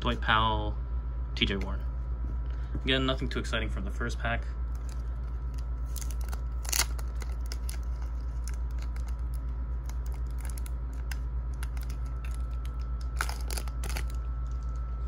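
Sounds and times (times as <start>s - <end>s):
steady low hum: 0.0s - 15.0s
plastic wrapper crinkling: 4.7s - 14.8s
sharp crackle: 4.8s - 14.8s.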